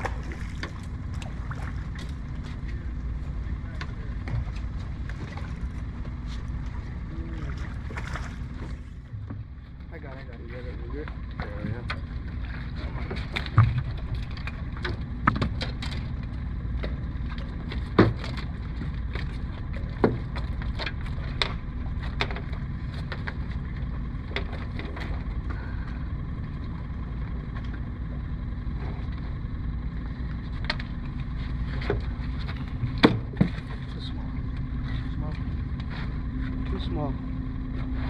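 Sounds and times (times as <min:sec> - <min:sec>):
low rumble on a boat: 0:00.0 - 0:38.0
knocks against a boat: 0:08.0 - 0:09.6, 0:12.8 - 0:16.2, 0:16.8 - 0:23.6, 0:31.7 - 0:33.9.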